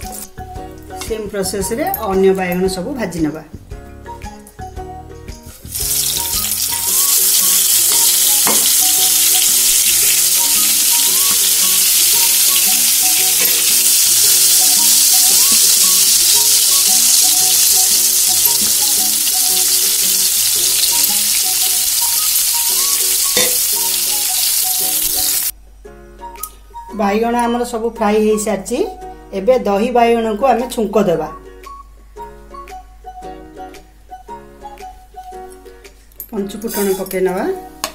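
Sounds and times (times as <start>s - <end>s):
frying in hot oil sizzle: 5.7s - 25.5s.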